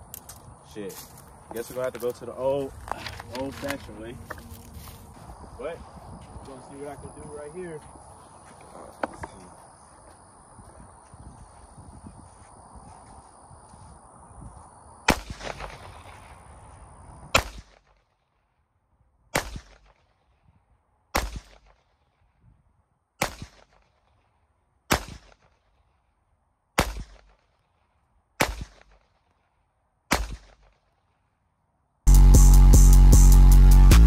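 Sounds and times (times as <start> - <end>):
pistol shots with echo: 15.1 - 16.3, 17.3 - 17.9, 19.3 - 20.0, 21.1 - 21.9, 23.2 - 23.8, 24.9 - 25.5, 26.8 - 27.4, 28.4 - 29.0, 30.1 - 30.8.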